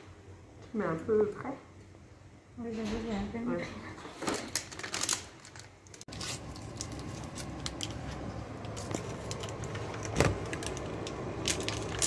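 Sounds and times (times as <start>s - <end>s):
steady low hum: 6.1s - 12.0s.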